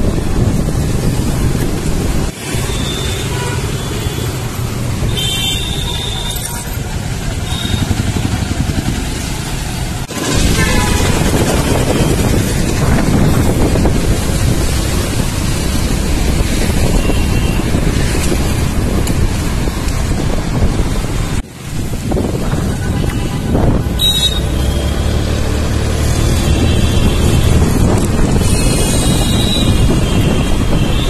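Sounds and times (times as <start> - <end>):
wind noise: 0.0 - 3.5, 7.5 - 31.0
motorcycle engine: 0.8 - 19.4
car horn honks: 5.1 - 6.5, 23.0 - 24.9.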